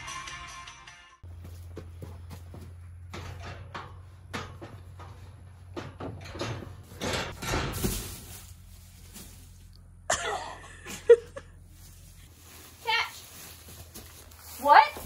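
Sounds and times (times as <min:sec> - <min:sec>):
metal gate knocking and rattling: 0:02.9 - 0:08.0
hay bales crunching: 0:06.7 - 0:09.8, 0:11.3 - 0:15.0.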